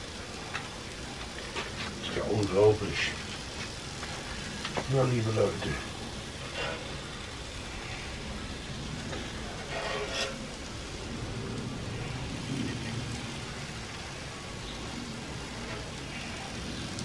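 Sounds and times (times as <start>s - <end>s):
food sizzling on a grill plate: 0.0s - 17.0s
utensil scraping a metal plate: 9.5s - 10.6s.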